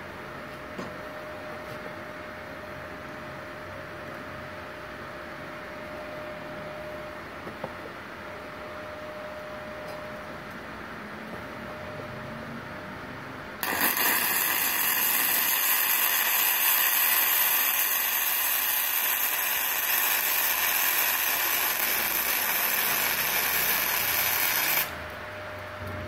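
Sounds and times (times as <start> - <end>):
welding arc hissing: 13.6 - 25.0.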